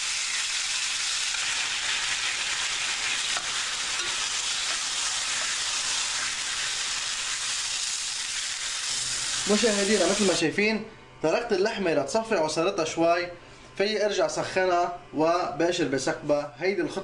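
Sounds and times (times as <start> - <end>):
steak sizzling in frying pan: 0.0 - 10.4.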